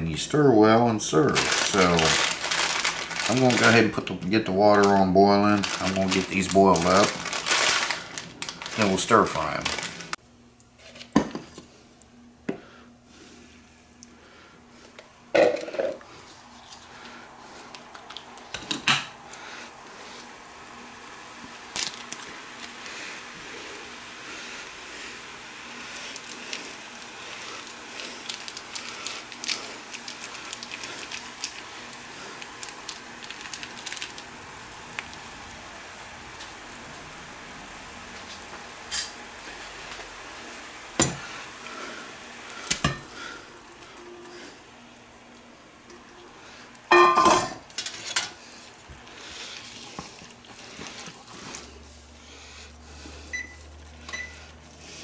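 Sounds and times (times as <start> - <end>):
water simmering in a frying pan: 19.8 - 43.8.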